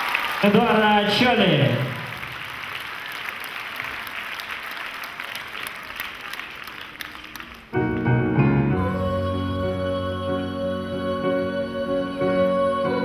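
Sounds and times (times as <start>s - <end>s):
audience applauding: 0.0s - 8.1s
music with long held notes: 7.7s - 13.0s.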